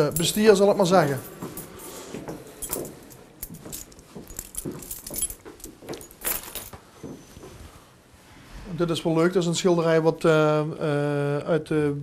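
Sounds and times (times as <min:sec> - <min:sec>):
footsteps on wooden floorboards: 0:01.2 - 0:07.6
papers rustling: 0:03.7 - 0:07.5.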